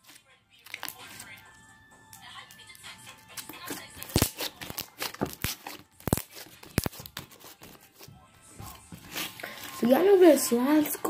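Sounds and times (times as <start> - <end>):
slime popping and crackling: 3.4 - 7.2.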